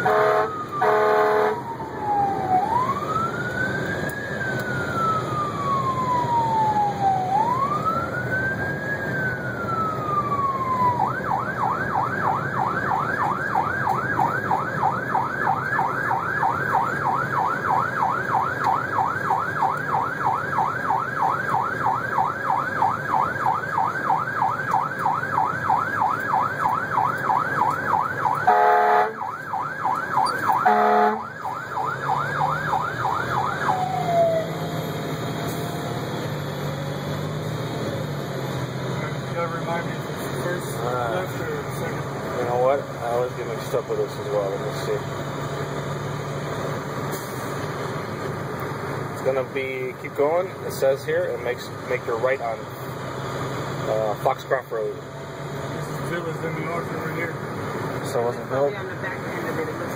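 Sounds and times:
horn blasts: 0.0s - 1.6s, 28.4s - 29.2s, 30.5s - 31.3s
electronic siren wailing and yelping: 0.0s - 35.0s
truck engine rumble: 0.0s - 59.9s.

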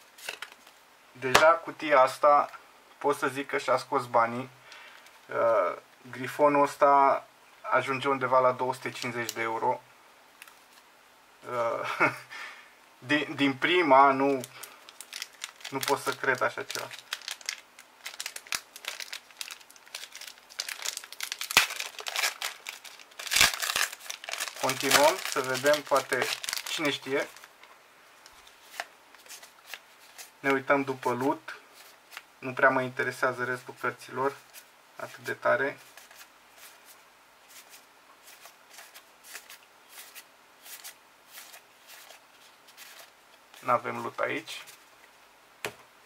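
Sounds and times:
foil wrapper crinkling and tearing: 14.4s - 27.5s.

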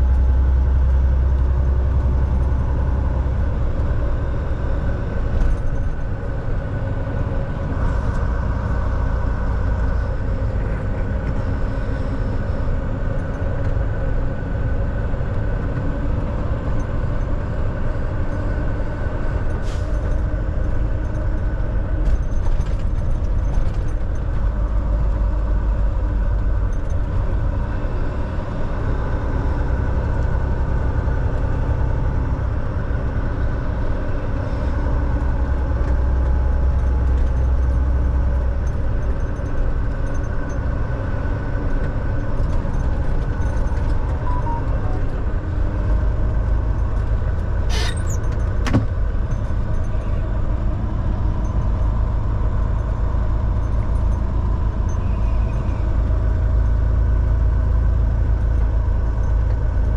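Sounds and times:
road noise: 0.0s - 59.9s
truck diesel engine drone: 0.0s - 59.9s.

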